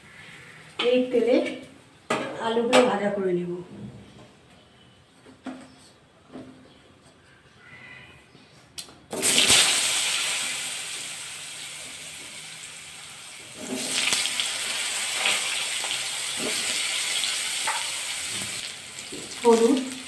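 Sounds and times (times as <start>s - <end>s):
potatoes sizzling in hot oil: 9.1s - 20.0s.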